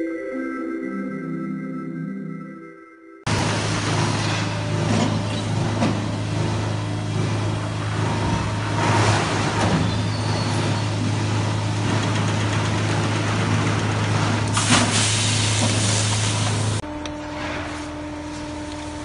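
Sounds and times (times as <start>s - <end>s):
low machine hum: 3.3s - 19.0s
hiss bursts: 14.5s - 16.8s.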